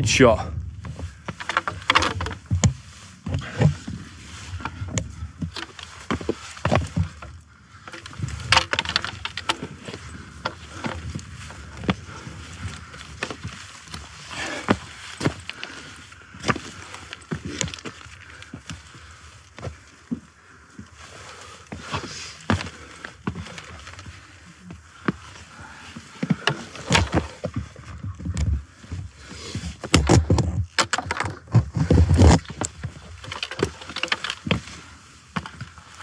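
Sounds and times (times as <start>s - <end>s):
boots scraping on rock: 0.8s - 20.2s, 21.0s - 36.0s
trekking poles clicking on rock: 0.9s - 20.0s, 25.0s - 27.6s, 29.3s - 36.0s.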